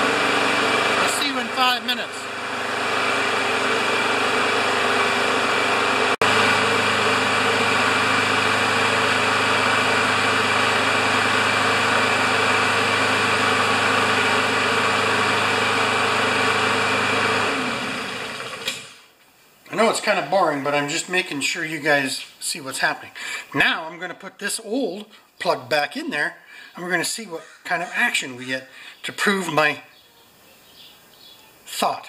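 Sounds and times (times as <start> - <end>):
lawn mower engine running: 0.0 - 19.0.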